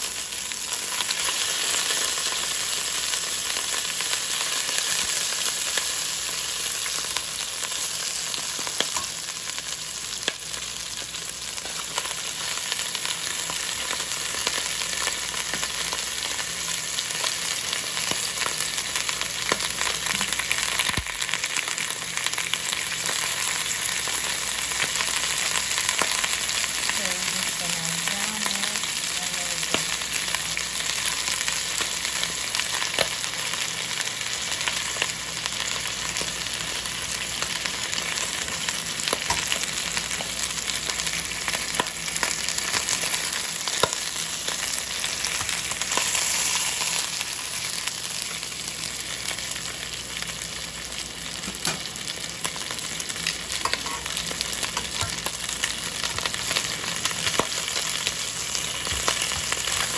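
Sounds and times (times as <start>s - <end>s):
chicken sizzling in oil: 0.0s - 59.9s
oil popping and crackling: 17.7s - 22.2s, 34.4s - 59.9s.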